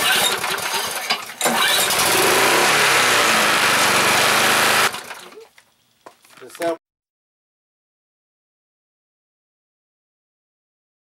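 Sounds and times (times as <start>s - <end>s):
lawn mower engine running: 0.0s - 5.3s.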